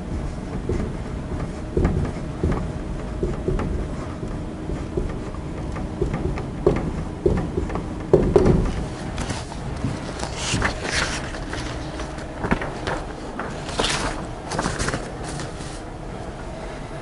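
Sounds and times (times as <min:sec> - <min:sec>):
paper rustling: 0:08.7 - 0:15.9.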